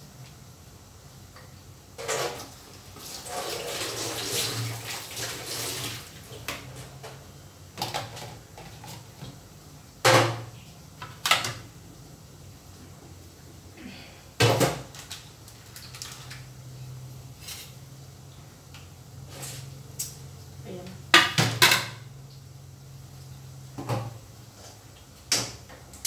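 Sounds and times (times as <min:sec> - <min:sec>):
dishes clattering in sink: 0:02.0 - 0:02.6, 0:07.8 - 0:09.2, 0:10.0 - 0:11.6, 0:14.4 - 0:14.9, 0:21.1 - 0:22.1
tap water running into sink: 0:02.0 - 0:06.8.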